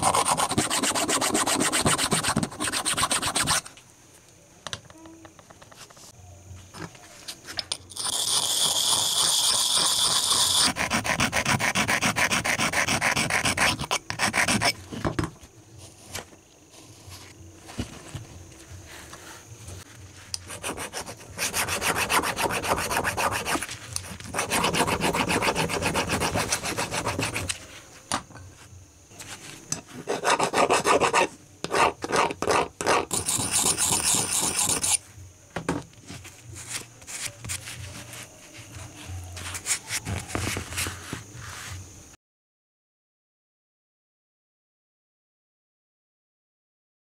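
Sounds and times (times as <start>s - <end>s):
hand file scraping metal nut: 0.0s - 3.7s, 7.9s - 14.8s, 20.3s - 27.6s, 30.0s - 35.0s.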